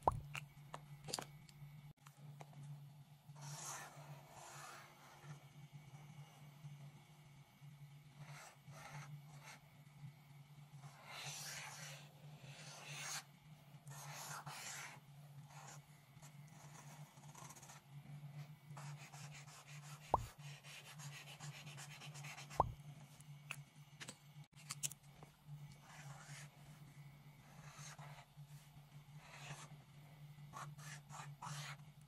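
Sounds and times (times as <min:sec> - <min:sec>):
marker scratching on paper: 0:10.8 - 0:13.2, 0:13.9 - 0:15.8, 0:16.5 - 0:17.8, 0:18.8 - 0:22.8, 0:25.8 - 0:26.5, 0:27.5 - 0:28.2, 0:29.2 - 0:29.7, 0:30.5 - 0:31.8.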